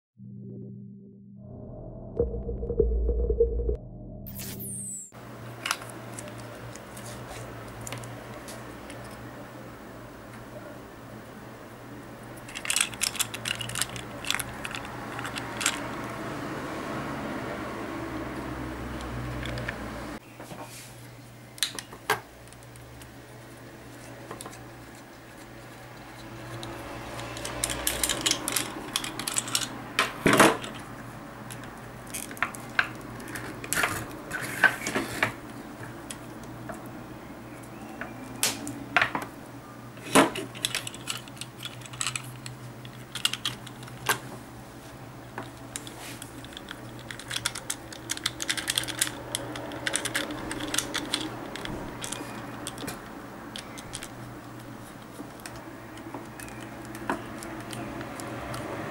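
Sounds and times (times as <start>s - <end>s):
low steady hum: 0.2s - 8.3s.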